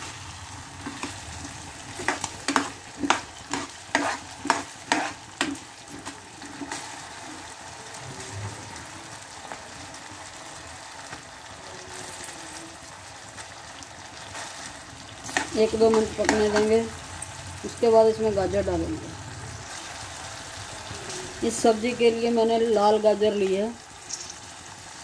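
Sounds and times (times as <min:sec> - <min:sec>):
vegetables sizzling in oil: 0:00.0 - 0:25.0
ladle scraping a pan: 0:00.8 - 0:07.5.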